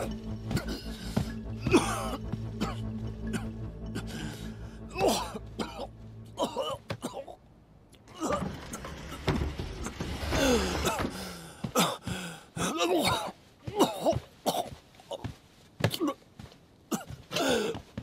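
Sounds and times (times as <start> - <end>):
man coughing hard: 1.6 - 4.1, 5.0 - 7.4, 12.6 - 15.3, 16.9 - 17.8.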